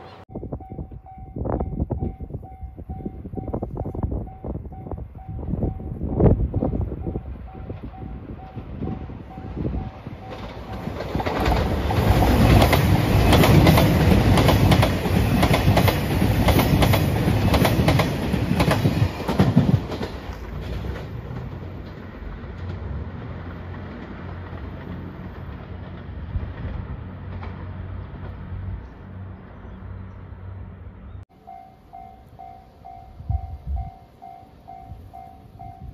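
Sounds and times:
train passing at speed: 0.0 - 35.9
wheels clacking over rail joints: 7.7 - 28.7.

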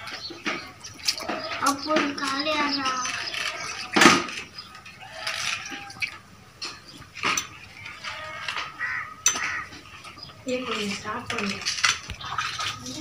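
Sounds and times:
potatoes scrubbed in water: 10.4 - 13.0.

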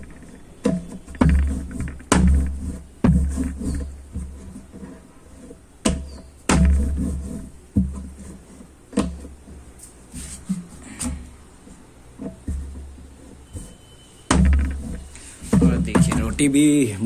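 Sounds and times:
rolling pin thudding on counter: 0.0 - 4.6, 5.8 - 9.5, 14.3 - 16.5.

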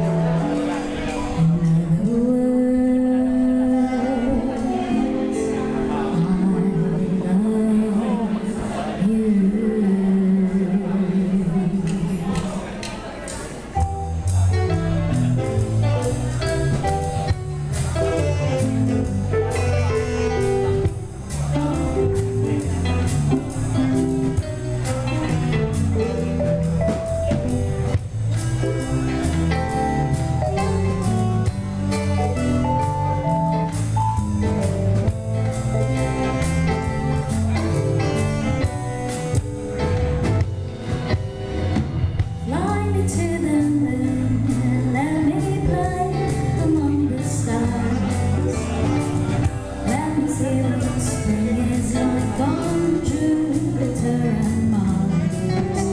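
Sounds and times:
live band playing: 0.0 - 55.9
woman singing: 1.3 - 12.5, 42.4 - 48.4, 49.8 - 55.9.

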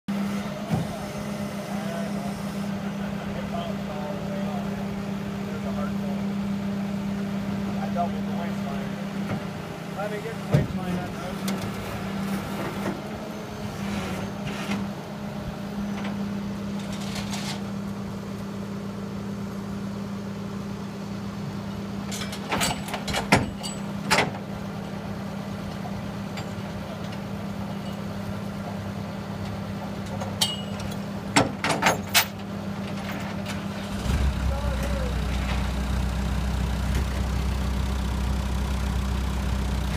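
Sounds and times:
heavy vehicle engine idling: 0.1 - 39.9
sharp knocks and clinks: 30.3 - 31.0.

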